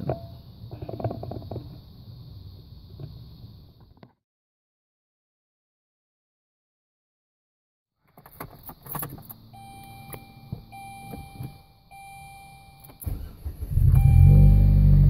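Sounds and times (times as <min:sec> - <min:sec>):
dashboard warning chime: 0:09.5 - 0:15.0
car engine fast idle: 0:13.0 - 0:15.0.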